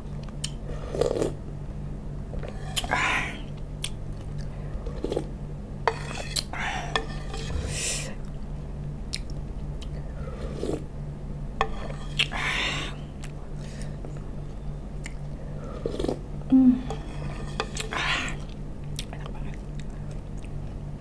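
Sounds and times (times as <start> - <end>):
steady low hum: 0.0 - 21.0
person slurping broth: 15.7 - 17.1.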